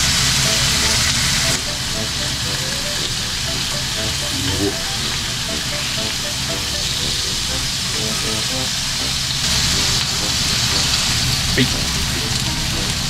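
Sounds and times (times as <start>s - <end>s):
meat sizzling on a grill plate: 9.4s - 12.9s.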